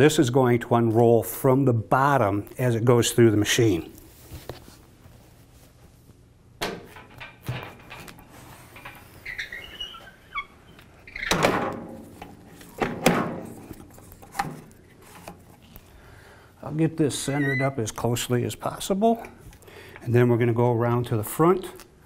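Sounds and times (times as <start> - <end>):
short squeaks: 8.8 - 11.4, 17.2 - 17.8.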